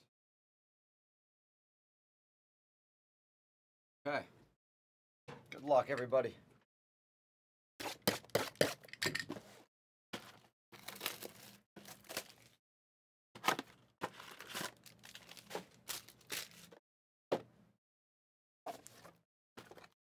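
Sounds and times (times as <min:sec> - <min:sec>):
plastic wrap and cardboard tearing: 0:10.8 - 0:12.6, 0:13.4 - 0:16.8.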